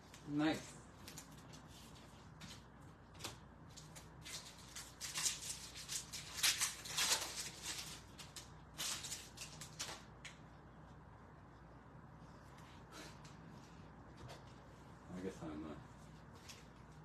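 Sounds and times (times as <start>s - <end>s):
trading cards rustling: 3.2s - 10.0s.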